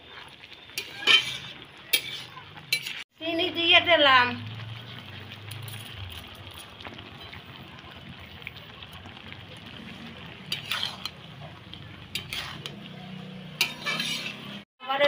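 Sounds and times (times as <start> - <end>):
curry simmering and bubbling: 0.0 - 14.7
metal spatula stirring: 0.1 - 3.0, 5.0 - 7.4, 9.0 - 14.6
spatula scraping pan: 0.2 - 3.0, 9.8 - 14.7.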